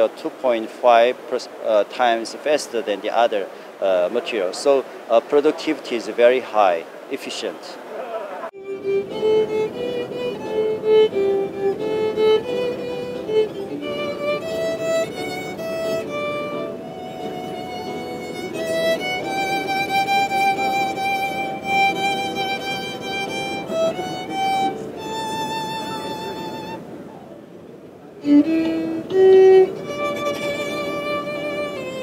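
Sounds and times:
bowed solo violin: 0:08.5 - 0:27.5, 0:28.2 - 0:32.0.

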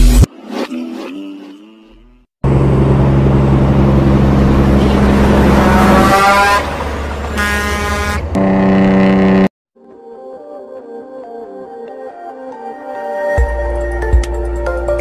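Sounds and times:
diesel truck engines: 0:02.4 - 0:09.5
road noise: 0:02.4 - 0:09.5
air horn: 0:05.5 - 0:06.8, 0:07.4 - 0:09.5.

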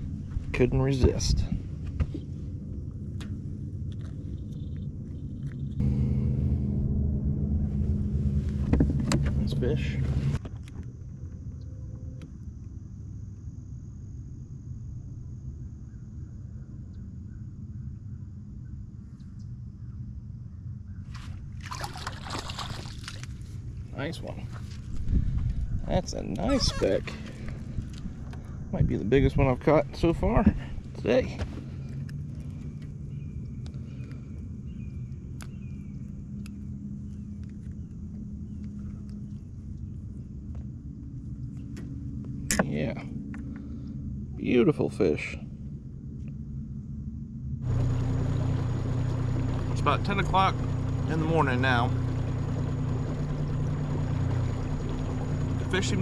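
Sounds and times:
low rumble: 0:00.0 - 0:56.0
steady low hum: 0:00.0 - 0:56.0
fish splashing at water surface: 0:21.2 - 0:23.5.

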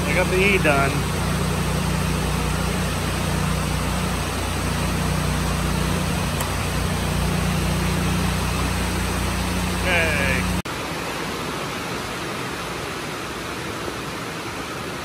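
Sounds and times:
generator engine humming: 0:00.0 - 0:10.6.

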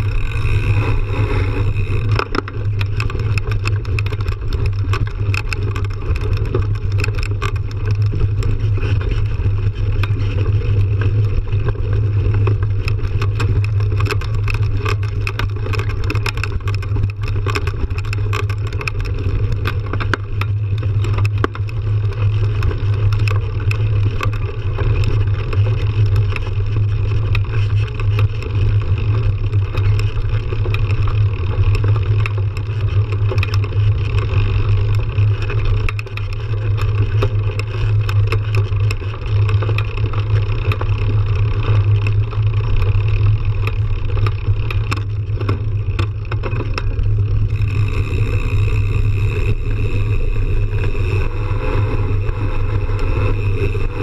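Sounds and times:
bike clicks and rattles: 0:00.0 - 0:54.0
rushing wind: 0:47.5 - 0:54.0.

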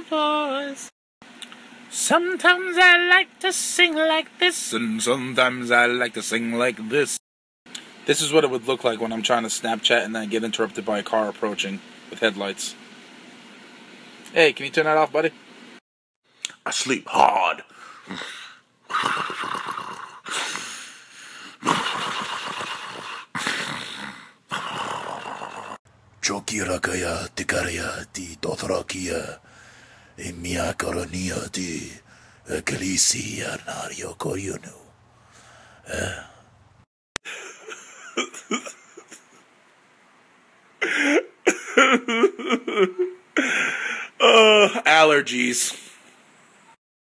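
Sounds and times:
man snoring: 0:17.8 - 0:25.8, 0:35.4 - 0:36.4
man crying and sobbing: 0:37.2 - 0:39.4, 0:40.8 - 0:44.9.

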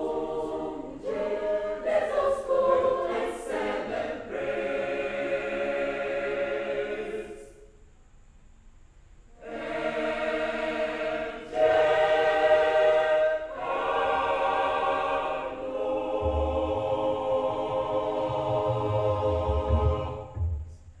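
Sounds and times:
mixed choir singing: 0:00.0 - 0:07.7, 0:09.4 - 0:20.8
deep bass layer: 0:16.2 - 0:20.8.

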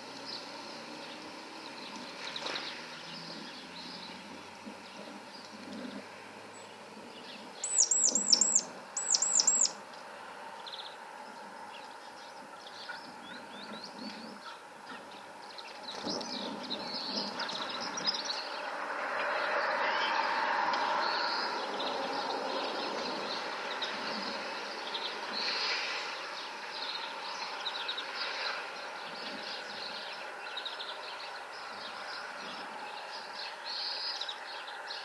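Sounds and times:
songbirds calling: 0:00.0 - 0:35.0
soft bird chirps: 0:00.2 - 0:09.8
high downward-sliding bird notes: 0:07.6 - 0:09.8.

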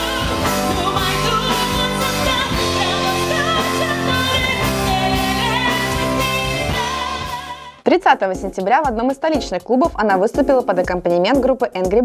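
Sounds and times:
woman singing: 0:00.0 - 0:08.0.

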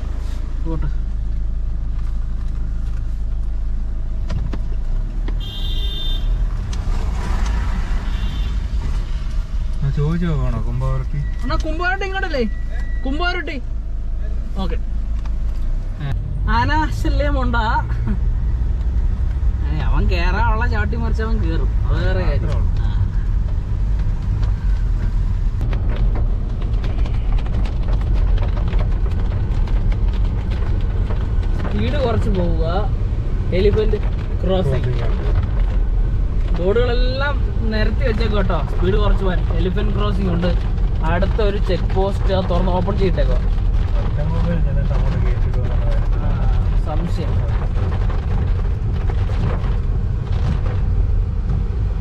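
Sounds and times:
car engine and tyres rumbling: 0:00.0 - 0:52.0
raindrops ticking on windshield: 0:18.7 - 0:52.0.

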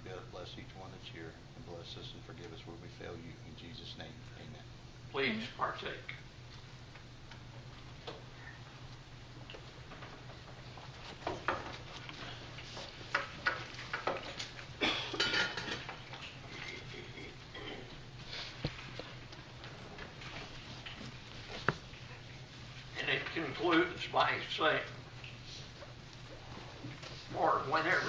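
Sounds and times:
cups and trays clinking: 0:15.0 - 0:16.9.

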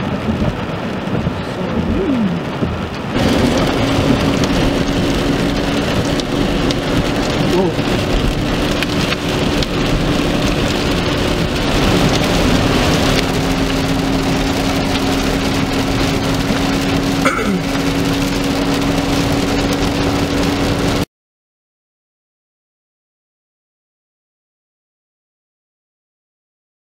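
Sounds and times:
car low hum: 0:00.0 - 0:21.0
heavy rain on car windshield: 0:00.0 - 0:21.1.

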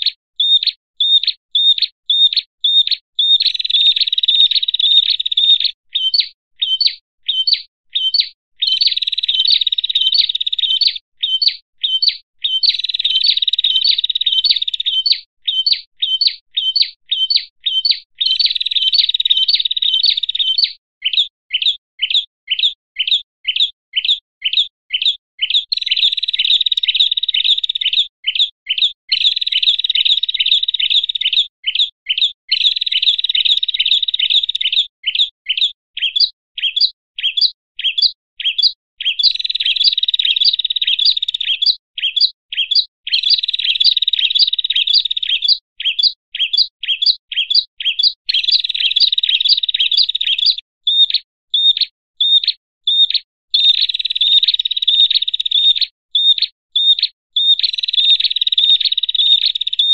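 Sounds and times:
bird fast trilling: 0:00.0 - 0:59.9
songbird scolding chirps: 0:00.0 - 0:59.9.

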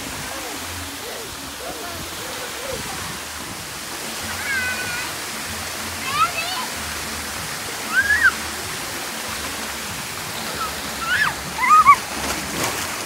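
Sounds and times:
water rushing down slide: 0:00.0 - 0:13.0
high-pitched cries: 0:07.8 - 0:08.4, 0:10.5 - 0:12.0.

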